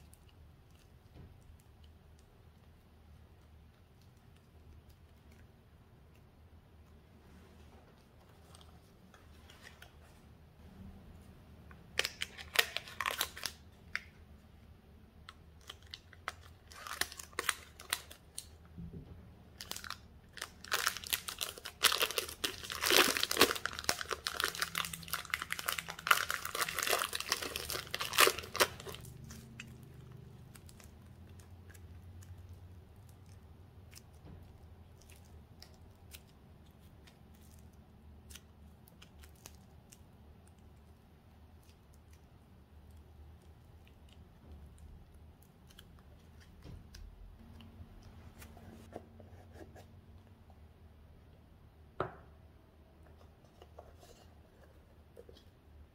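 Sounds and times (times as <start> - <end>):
plastic wrapping crinkling and tearing: 11.9 - 14.2, 15.2 - 18.6, 19.5 - 48.9.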